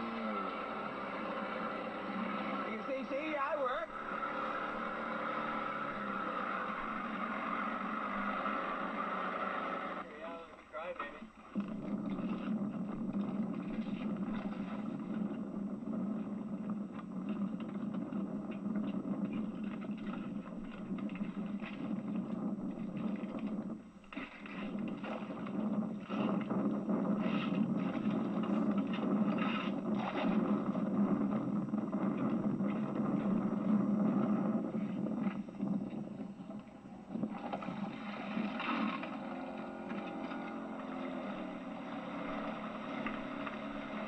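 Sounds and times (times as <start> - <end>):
outboard motor running: 0.0 - 44.0.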